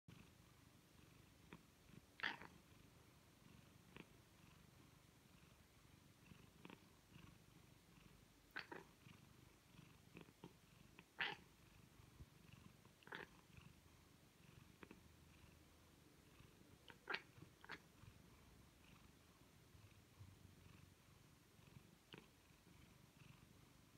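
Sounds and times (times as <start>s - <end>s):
cat purring: 0.1s - 23.9s
cat chattering calls: 2.2s - 2.5s, 8.5s - 8.9s, 11.0s - 11.5s, 13.0s - 13.3s, 16.8s - 17.9s.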